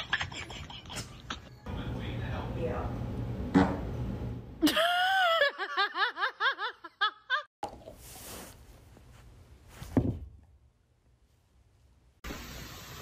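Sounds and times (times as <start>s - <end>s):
person giggling: 0.0s - 1.5s, 4.6s - 7.5s.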